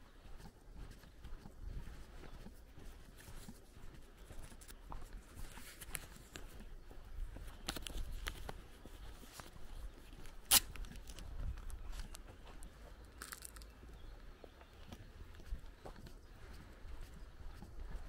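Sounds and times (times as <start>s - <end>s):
footsteps crunching on dirt road: 0.0s - 18.0s.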